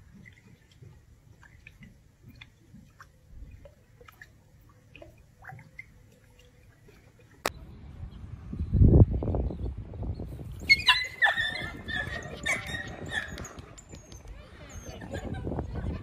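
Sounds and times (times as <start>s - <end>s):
wet smacks and drips in pond: 0.0s - 7.6s.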